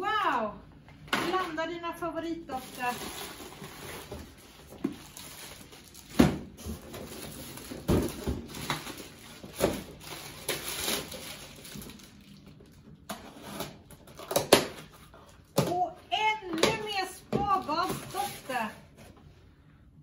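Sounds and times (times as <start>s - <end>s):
plastic packaging crinkling: 2.4s - 15.0s, 17.6s - 18.8s.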